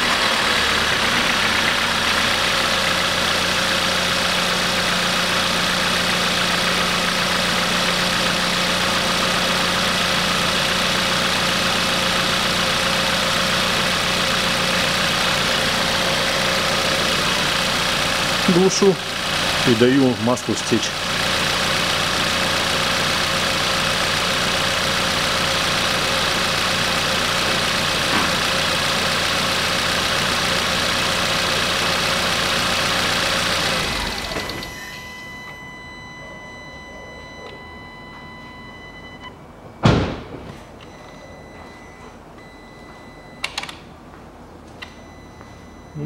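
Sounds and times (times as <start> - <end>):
car engine idling: 0.0 - 43.6
sharp knock: 39.8 - 40.5.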